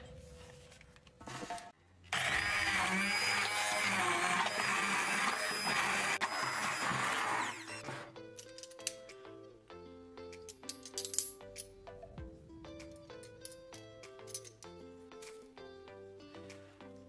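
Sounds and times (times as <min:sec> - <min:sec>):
immersion blender running: 0:02.1 - 0:07.8.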